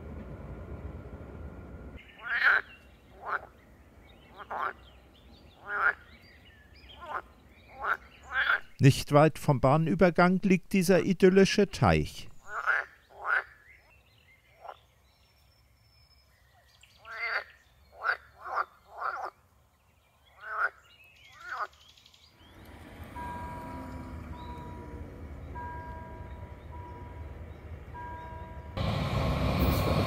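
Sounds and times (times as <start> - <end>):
low hum of traffic: 0.0 - 30.0
frogs croaking: 2.0 - 3.5, 4.3 - 4.8, 5.6 - 6.1, 7.0 - 8.8, 12.4 - 13.7, 17.1 - 19.4, 20.3 - 20.8
level crossing warning signal: 8.8 - 12.5, 22.7 - 28.9.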